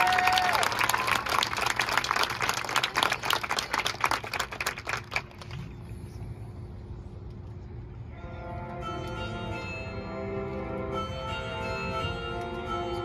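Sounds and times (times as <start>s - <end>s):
crowd applause: 0.0s - 5.6s.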